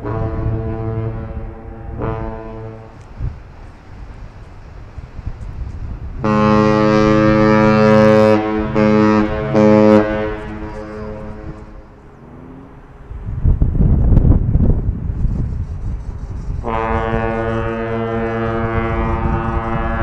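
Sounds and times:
ship's horn blasts: 0.0 - 3.4, 5.9 - 12.9, 16.6 - 20.0.

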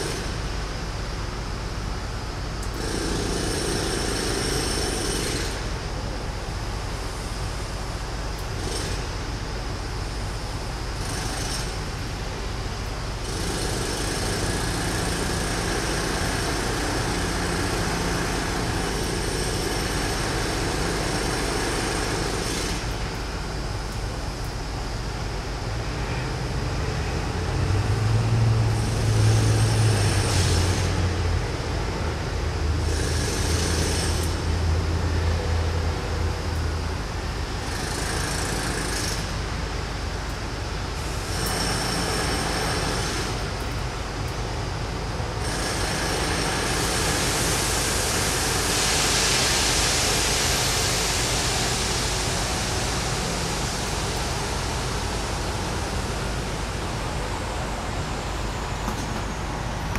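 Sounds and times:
city traffic rumble: 0.0 - 49.0, 49.7 - 59.9
jackhammers breaking concrete: 32.9 - 34.2, 45.4 - 47.5.

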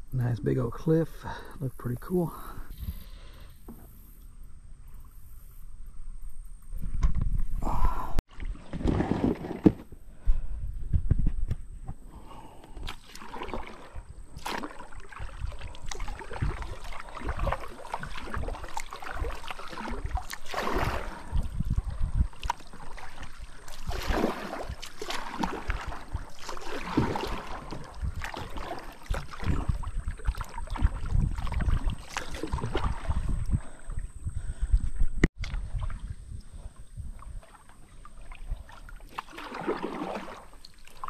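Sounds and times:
kayak paddle splashing in water: 8.3 - 10.0, 12.7 - 34.1, 37.0 - 41.0.

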